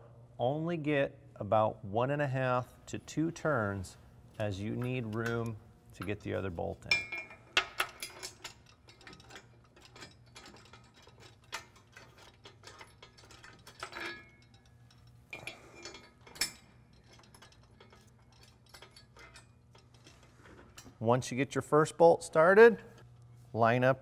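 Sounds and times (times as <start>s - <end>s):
metal bolt clicks and rattles: 4.6s - 21.0s.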